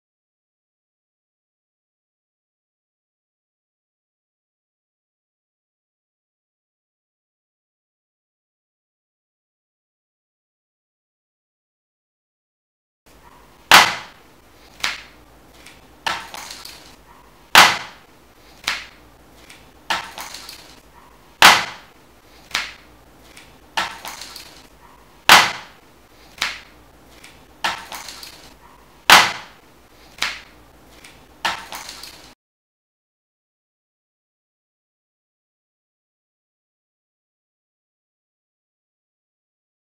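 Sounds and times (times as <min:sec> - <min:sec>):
sharp percussive hits: 0:13.7 - 0:14.2.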